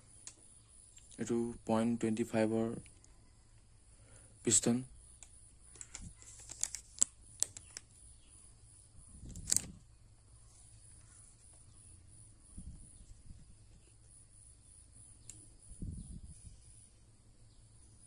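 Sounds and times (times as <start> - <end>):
small sharp clicks: 5.2 - 8.0, 9.2 - 9.8, 15.2 - 15.5
brief rustle: 5.7 - 7.9, 9.2 - 9.9.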